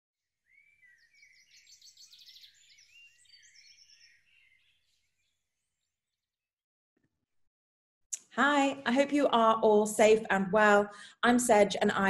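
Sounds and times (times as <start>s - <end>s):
birds chirping and trilling: 0.4s - 6.4s.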